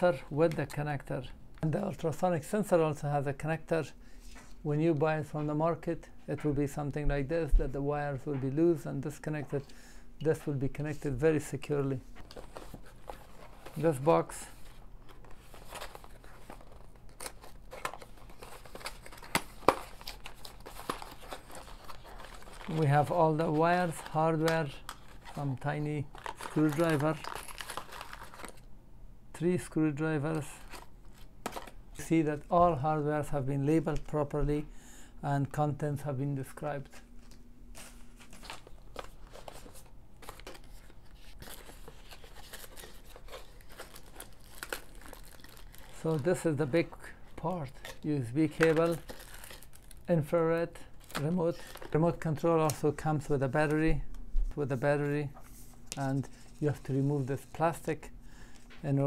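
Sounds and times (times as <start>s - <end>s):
cardboard packaging rustling: 12.1s - 28.6s, 37.0s - 50.1s, 51.0s - 52.9s
plastic bag crinkling: 12.3s - 28.6s, 37.8s - 50.1s.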